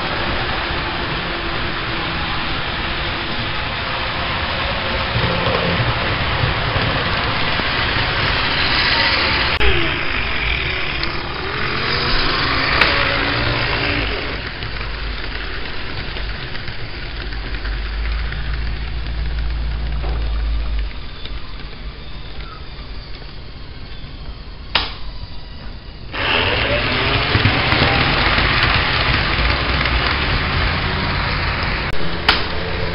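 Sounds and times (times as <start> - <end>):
low hum: 0.0 - 32.9
model train motors whirring: 0.0 - 32.9
sharp clicks: 24.2 - 25.2.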